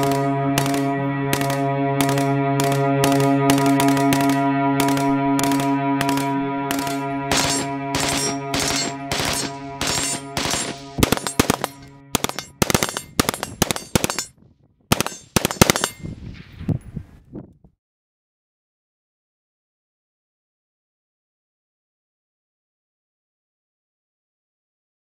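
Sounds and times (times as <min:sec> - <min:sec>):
held music chord: 0:00.0 - 0:14.2
rifle gunfire: 0:00.0 - 0:14.3, 0:14.9 - 0:16.0.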